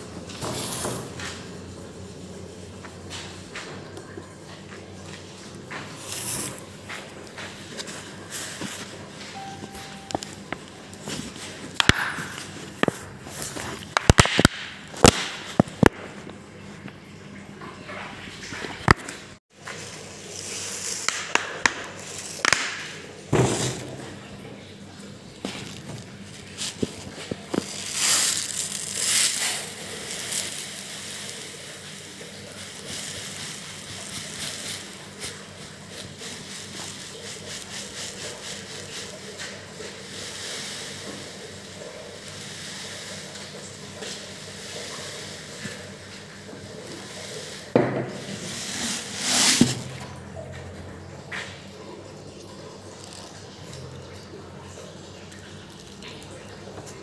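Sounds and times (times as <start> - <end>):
granules pouring onto metal tray: 6.0 - 6.6, 27.4 - 46.0.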